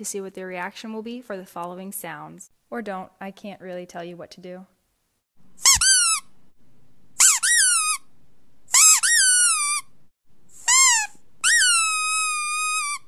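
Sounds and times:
squeaky dog toy squeaks: 5.6s - 6.3s, 7.2s - 8.1s, 8.7s - 9.9s, 10.6s - 13.0s.

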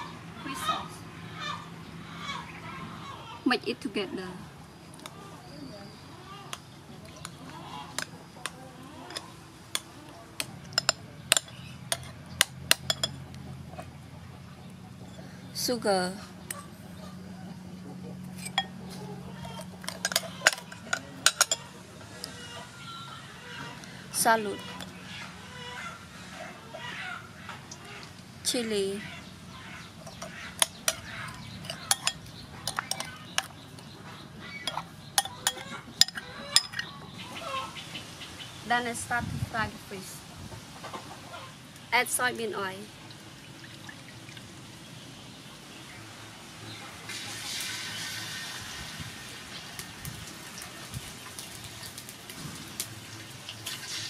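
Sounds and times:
metal spoon clinking ceramic bowl: 10.7s - 13.2s, 19.4s - 21.7s, 30.1s - 33.6s, 34.7s - 36.9s.

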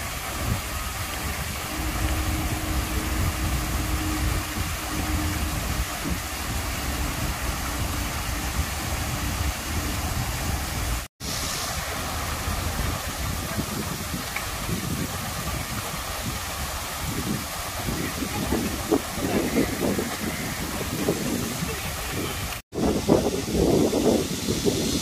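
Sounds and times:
waterfall rushing: 0.0s - 25.0s
low rumble: 0.4s - 11.1s.

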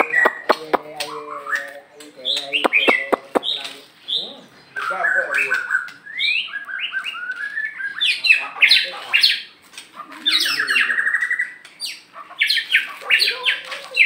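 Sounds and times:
bird singing whistled phrases: 4.8s - 8.2s.

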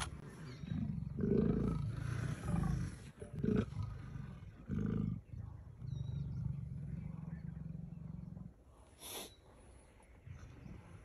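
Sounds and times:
leopards growling: 0.0s - 8.8s.

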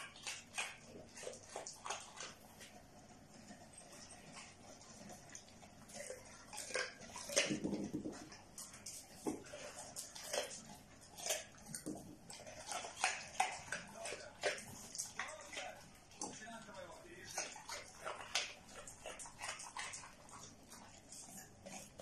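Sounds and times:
dog sniffing and snuffling: 0.0s - 22.0s
carrot knocking on tile: 7.4s - 8.3s.

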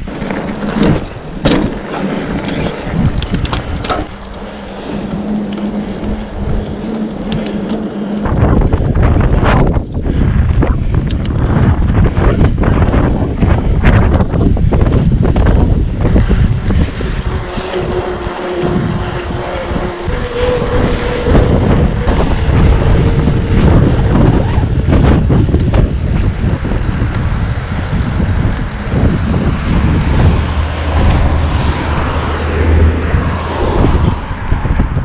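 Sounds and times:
tyre road noise: 0.0s - 35.0s
wind buffeting microphone: 0.0s - 35.0s.

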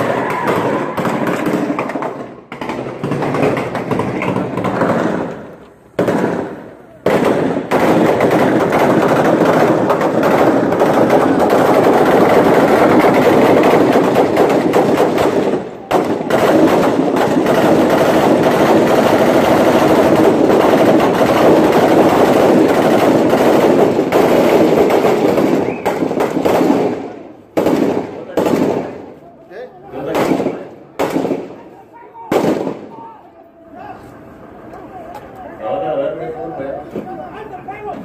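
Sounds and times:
automatic gunfire: 0.0s - 29.0s, 30.0s - 31.6s, 32.3s - 32.9s.

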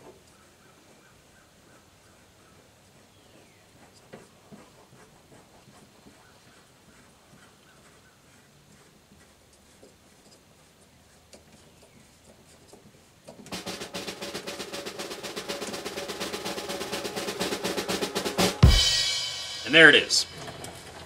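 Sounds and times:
snare drum roll: 13.5s - 21.0s.

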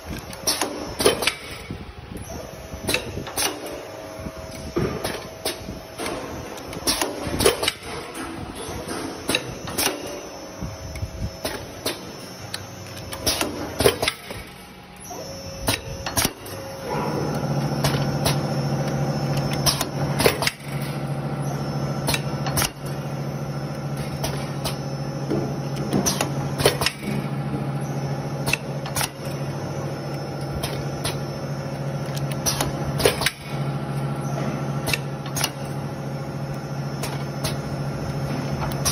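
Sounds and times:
machine hum: 0.0s - 38.9s
machine parts clacking: 37.0s - 38.9s.

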